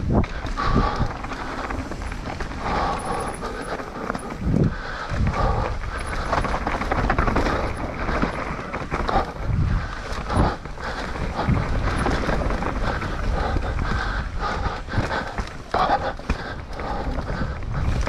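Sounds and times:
bike knocks and rattles: 0.0 - 18.0
bike tyres on dirt: 0.0 - 18.0.

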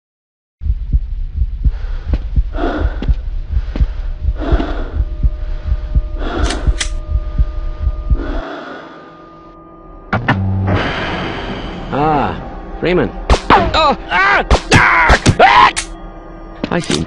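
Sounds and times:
low rumbling drone: 0.6 - 13.3
fast regular thumps: 0.7 - 8.2.

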